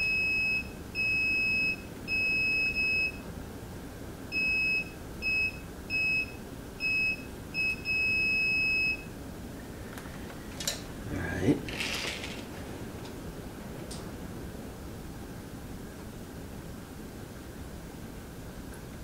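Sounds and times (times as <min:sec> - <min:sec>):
continuity tester beeping: 0:00.0 - 0:03.2, 0:04.3 - 0:09.2.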